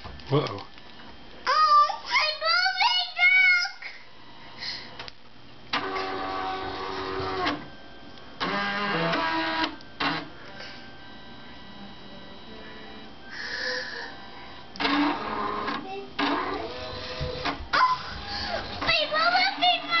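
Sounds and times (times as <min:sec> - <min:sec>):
faint constant hum: 0:00.0 - 0:20.0
small electric motors whirring: 0:08.4 - 0:10.3, 0:14.8 - 0:20.0.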